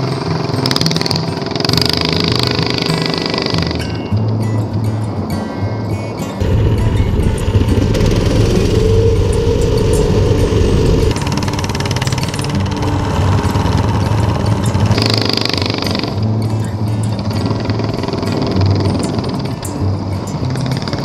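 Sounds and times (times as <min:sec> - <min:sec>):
small gas engines running: 0:00.0 - 0:04.4, 0:06.2 - 0:21.0
high hiss: 0:06.4 - 0:16.2
wind rush: 0:06.4 - 0:16.2.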